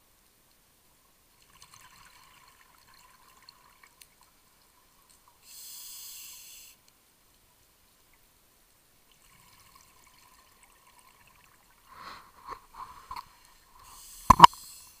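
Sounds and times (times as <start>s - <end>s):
regulator inhalation hiss: 5.4s - 6.8s, 13.8s - 15.0s.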